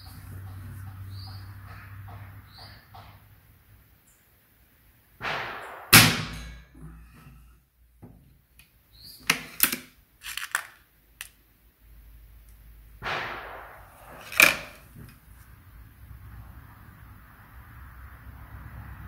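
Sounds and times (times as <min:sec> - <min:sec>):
air rifle shot: 0:05.2 - 0:06.7, 0:13.0 - 0:14.8.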